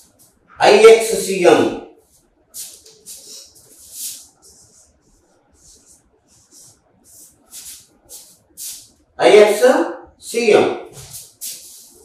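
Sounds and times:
marker writing on whiteboard: 0:00.0 - 0:09.0, 0:10.9 - 0:12.0.

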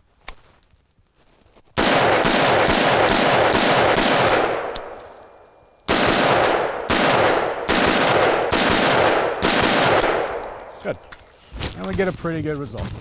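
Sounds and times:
rifle shots with long echo: 0:01.8 - 0:10.9.

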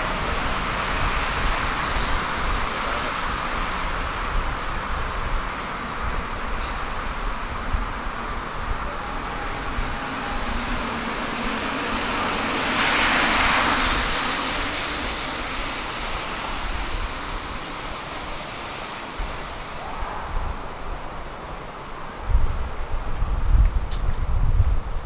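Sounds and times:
traffic hum: 0:00.0 - 0:24.4
car passing: 0:07.9 - 0:21.2.

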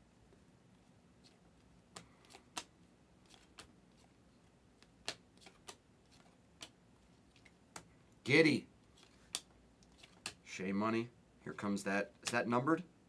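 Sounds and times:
trading cards flicking: 0:01.9 - 0:04.1, 0:04.8 - 0:07.9, 0:09.0 - 0:10.4.

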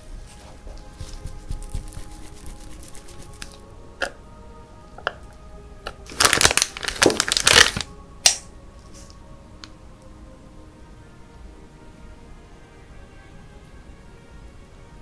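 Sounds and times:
soft background music: 0:00.0 - 0:15.0
crackling crunching handling noise: 0:05.9 - 0:09.2.

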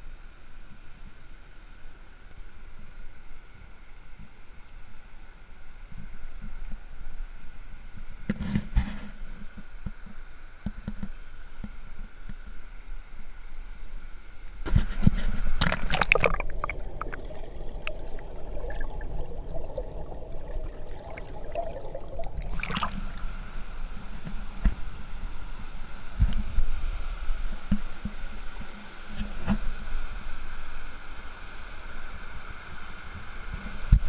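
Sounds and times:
splashing: 0:15.5 - 0:23.4.

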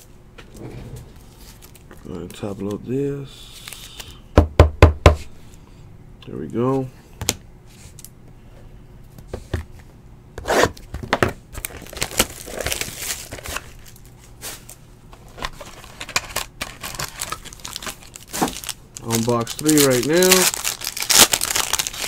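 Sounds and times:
paper and cardboard rustling: 0:11.6 - 0:22.0.

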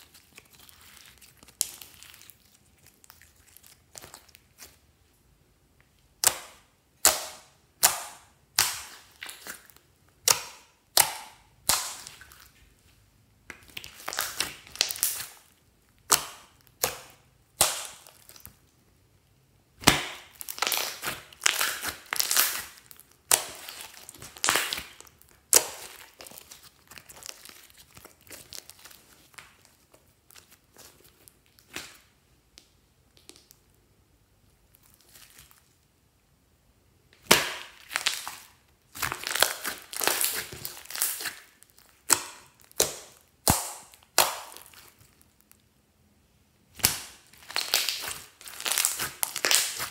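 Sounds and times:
crackling slime squelches: 0:00.0 - 0:36.1, 0:37.1 - 0:45.8, 0:46.6 - 0:49.9
wet slime pops: 0:42.0 - 0:44.9.

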